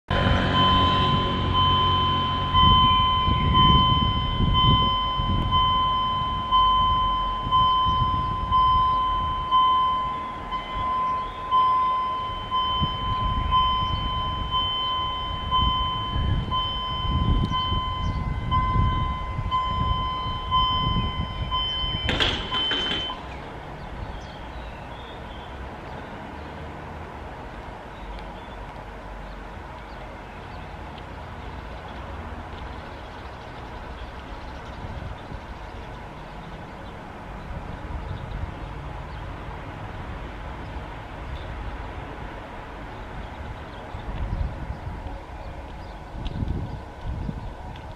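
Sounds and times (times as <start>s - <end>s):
low rumble: 0.1s - 24.4s
level crossing warning bell: 0.4s - 23.3s
barrier coming down: 22.0s - 23.5s.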